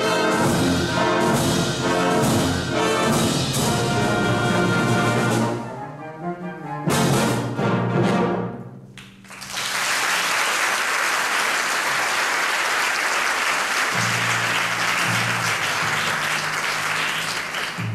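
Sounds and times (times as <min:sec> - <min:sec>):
audience applauding: 0:09.0 - 0:17.9.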